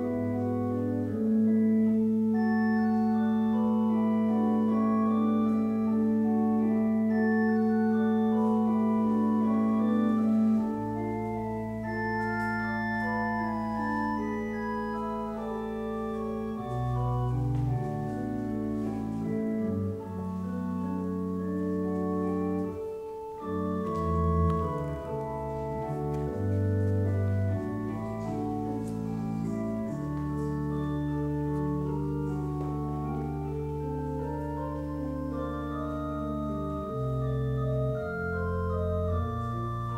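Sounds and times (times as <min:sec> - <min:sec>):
organ playing chords: 0:00.0 - 0:39.9.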